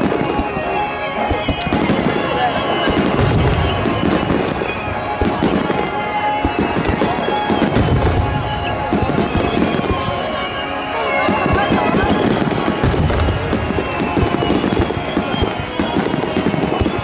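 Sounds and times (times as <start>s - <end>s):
fireworks bursting with bangs: 0.0s - 17.0s
fireworks crackling: 0.0s - 17.0s
music: 0.0s - 17.0s.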